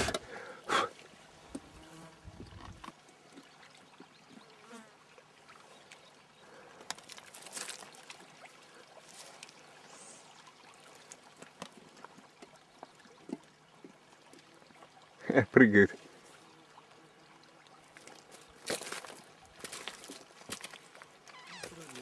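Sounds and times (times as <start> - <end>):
faint running river water: 0.0 - 22.0
insects buzzing: 21.0 - 22.0.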